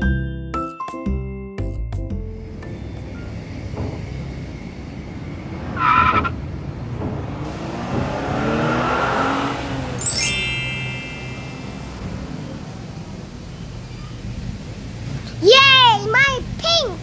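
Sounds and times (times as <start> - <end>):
truck engine rumble: 2.2 - 17.0
tires squealing: 3.3 - 10.0
bright ringing: 10.0 - 12.0.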